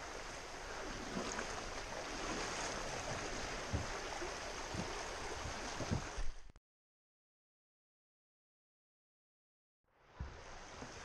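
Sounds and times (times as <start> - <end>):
stream rushing over rocks: 0.0 - 6.4, 10.1 - 11.0
dull low thumps: 3.6 - 4.1.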